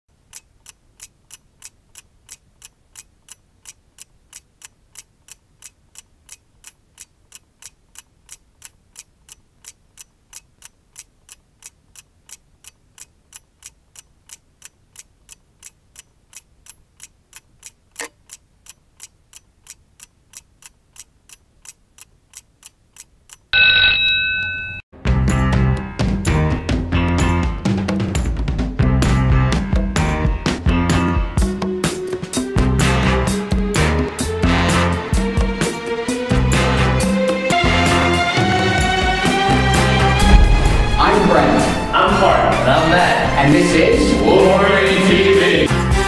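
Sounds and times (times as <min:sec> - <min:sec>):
clock ticking: 0:00.1 - 0:23.6
bell ringing: 0:23.6 - 0:24.8
loud click: 0:40.2 - 0:42.6.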